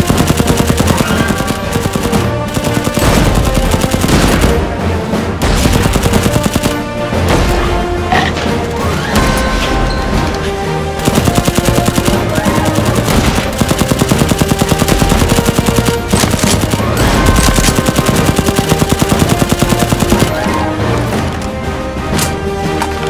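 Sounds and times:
rapid automatic blaster fire: 0:00.0 - 0:04.8, 0:05.4 - 0:07.0, 0:11.0 - 0:20.7
background music: 0:00.0 - 0:23.0.

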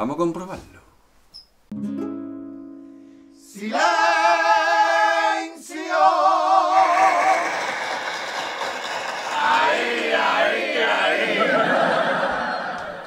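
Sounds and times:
male vocal group singing in harmony: 0:03.5 - 0:07.9.

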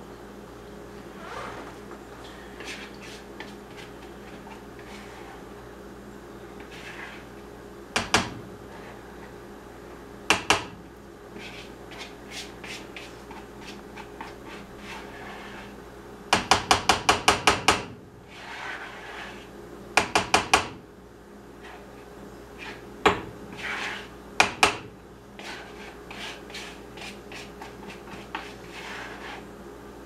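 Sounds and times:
utensil scraping mixing bowl: 0:02.6 - 0:05.6, 0:06.5 - 0:07.4, 0:11.3 - 0:15.8, 0:18.2 - 0:19.6, 0:21.6 - 0:22.0, 0:22.6 - 0:22.8, 0:23.5 - 0:24.2, 0:25.4 - 0:29.5.

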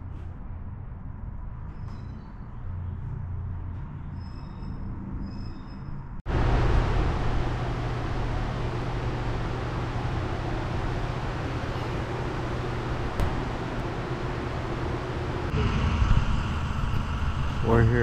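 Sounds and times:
low background hum: 0:06.3 - 0:18.0
low drone: 0:06.3 - 0:18.0
steady rushing noise: 0:06.3 - 0:18.0.

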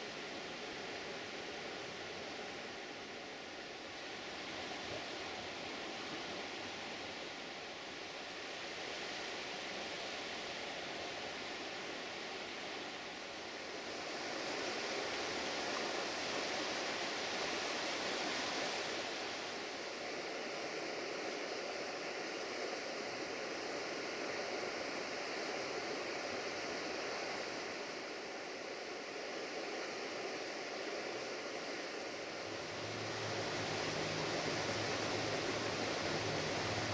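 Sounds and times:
outdoor rushing ambience: 0:31.9 - 0:36.9.

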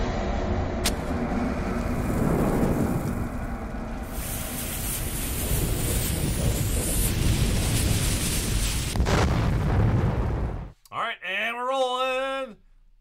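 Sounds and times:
fire low rumbling roar: 0:00.0 - 0:10.7
burning fuse hiss: 0:01.8 - 0:09.8.

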